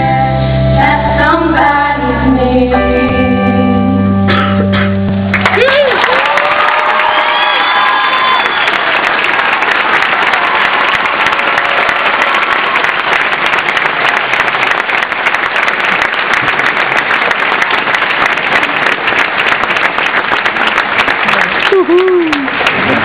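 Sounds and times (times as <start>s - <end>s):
audience applauding: 5.3s - 23.0s.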